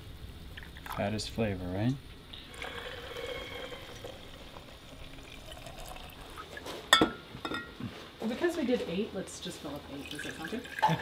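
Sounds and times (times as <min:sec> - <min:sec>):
liquid pouring into glass jar: 0:02.4 - 0:06.6, 0:10.0 - 0:11.0.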